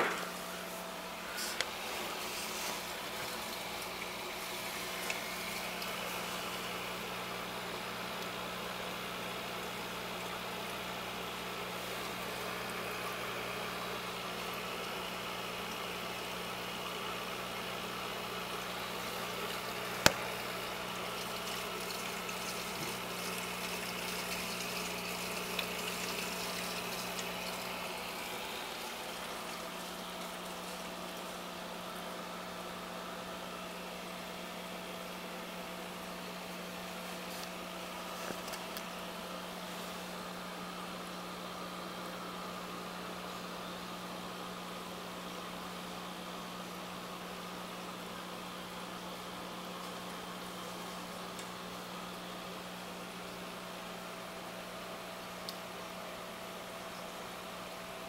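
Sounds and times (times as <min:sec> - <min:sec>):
aquarium pump humming: 0:00.0 - 0:58.0
water moving and hissing: 0:00.4 - 0:06.6.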